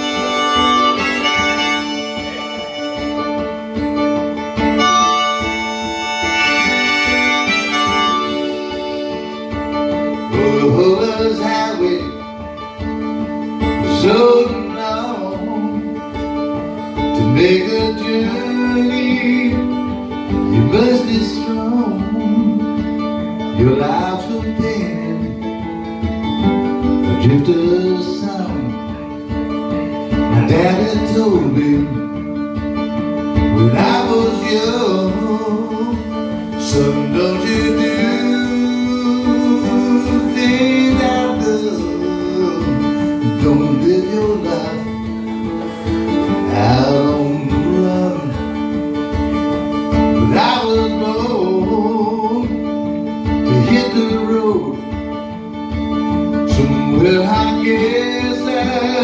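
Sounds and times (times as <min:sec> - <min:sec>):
man singing: 0:00.0 - 0:03.6, 0:10.1 - 0:12.5, 0:13.6 - 0:16.4, 0:17.0 - 0:25.7, 0:26.8 - 0:29.0, 0:30.1 - 0:32.4, 0:33.4 - 0:49.0, 0:49.8 - 0:55.4, 0:56.2 - 0:59.0
acoustic guitar: 0:00.0 - 0:59.0.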